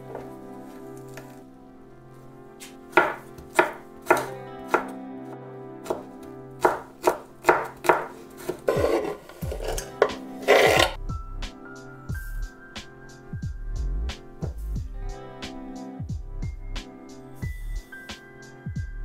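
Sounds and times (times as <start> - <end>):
knife chopping on cutting board: 2.6 - 4.9, 5.8 - 11.0
blade scraping across board: 8.3 - 11.0.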